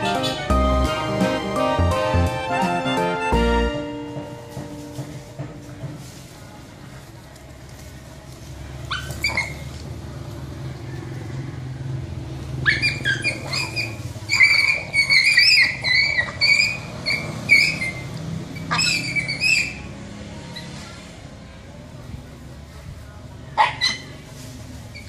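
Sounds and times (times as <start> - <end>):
vehicle engine humming: 0.0 - 25.0
puppy whining and yelping: 8.9 - 9.7, 12.6 - 19.9.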